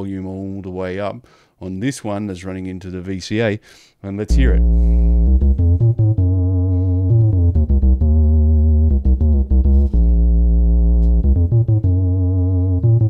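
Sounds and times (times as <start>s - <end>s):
synthesizer bass line: 4.3s - 13.0s.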